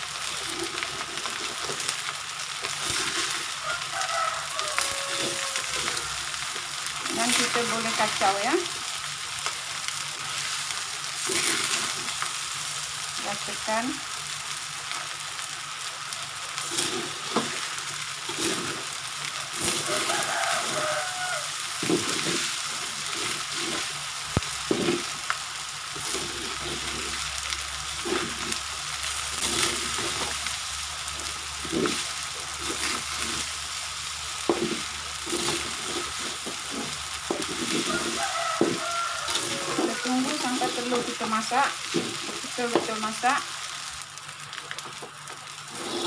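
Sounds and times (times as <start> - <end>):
rice sizzling in a wok: 0.0 - 46.0
metal spatula scraping a pan: 34.5 - 43.0, 45.7 - 46.0.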